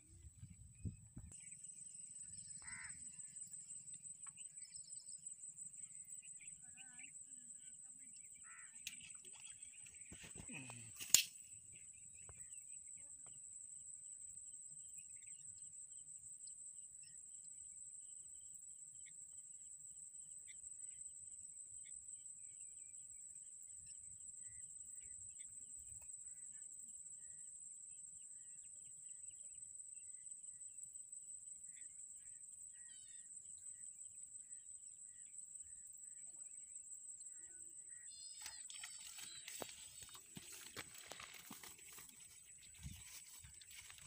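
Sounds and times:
insect drone: 0.0s - 44.0s
bird chirps: 37.2s - 44.0s.

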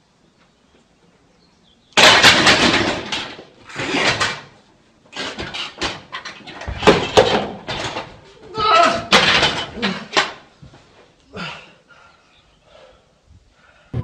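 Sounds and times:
barbell crashing down: 2.0s - 4.5s
knocks and thuds on rack and floor: 2.0s - 4.5s, 5.2s - 8.2s, 9.0s - 10.4s.

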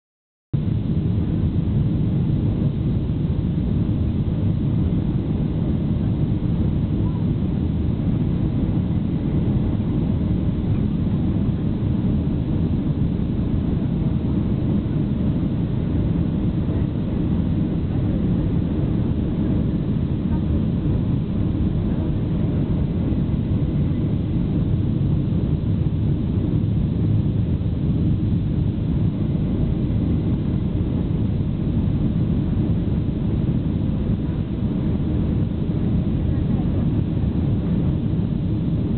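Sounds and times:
airplane cabin engine rumble: 0.6s - 38.9s.

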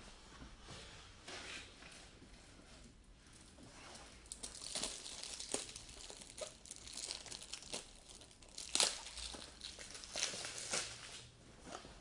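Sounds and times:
card packaging crinkling: 4.3s - 11.2s.

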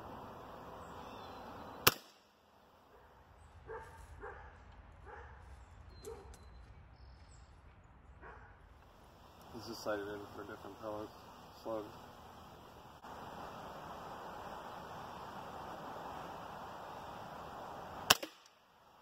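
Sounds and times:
outdoor background noise: 0.0s - 19.0s
air rifle shot: 1.8s - 2.3s, 18.0s - 18.6s.

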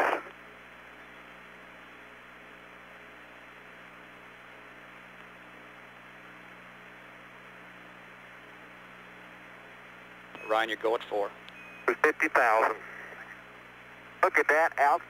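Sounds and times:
radio hiss: 0.0s - 1.0s, 10.4s - 15.0s
low electrical hum: 0.0s - 15.0s.

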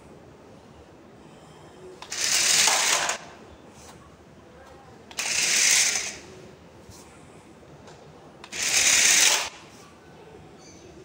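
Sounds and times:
toy car motors whirring: 2.0s - 3.3s, 5.1s - 6.2s, 8.4s - 9.6s.

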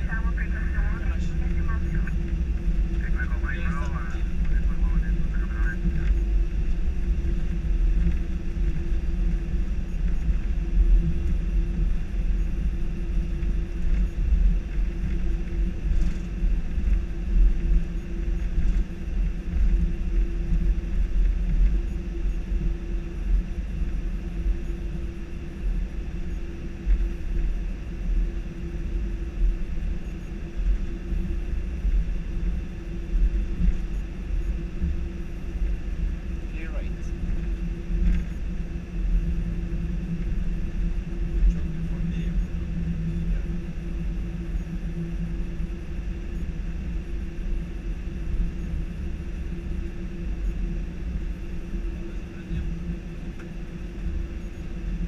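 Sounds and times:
constant hum: 0.0s - 55.0s
jet engines: 0.0s - 55.0s
wheels rumbling on runway: 0.0s - 55.0s.

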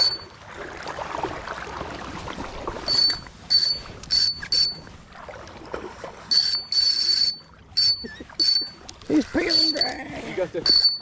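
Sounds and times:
fishing reel drag buzzing: 6.3s - 8.8s.

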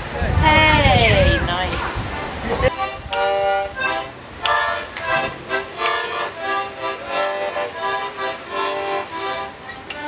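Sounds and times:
music melody: 2.0s - 10.0s.

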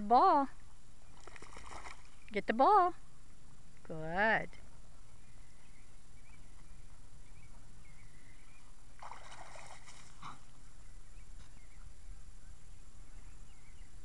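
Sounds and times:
water splashing: 1.2s - 2.2s, 9.0s - 10.5s.

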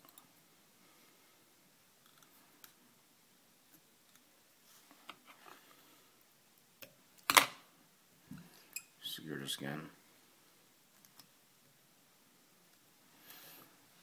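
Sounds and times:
faint ticks and small clicks: 0.0s - 0.4s, 2.0s - 2.8s, 3.7s - 4.3s, 10.9s - 11.4s.

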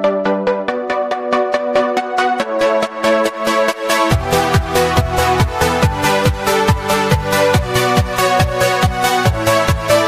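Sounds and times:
electronic dance music: 0.0s - 10.0s
held synth chords: 0.0s - 10.0s.

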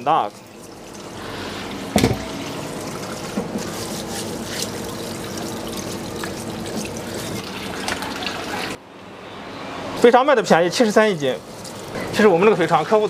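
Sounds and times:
steel wool scrubbing: 0.0s - 8.8s
tap water running into sink: 0.2s - 8.8s.

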